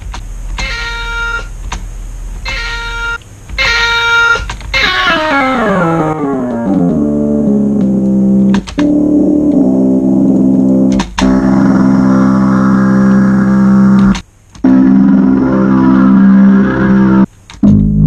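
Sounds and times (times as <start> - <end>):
synth made from cat meow: 0.6 - 1.5, 2.4 - 6.8, 14.7 - 17.3.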